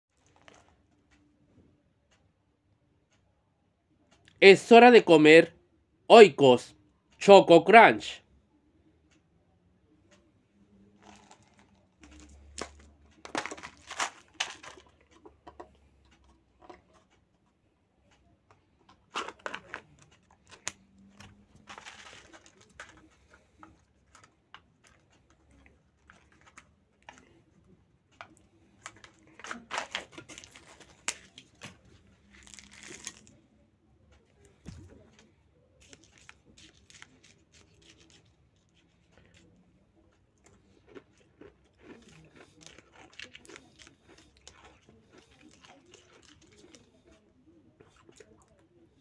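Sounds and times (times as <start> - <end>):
plastic packaging crinkling and tearing: 11.0 - 14.9, 21.6 - 23.0, 28.8 - 31.7, 32.3 - 33.3.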